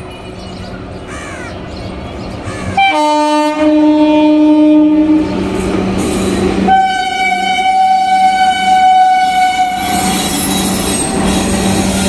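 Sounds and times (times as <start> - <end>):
train horn: 2.8 - 5.4, 6.7 - 10.4.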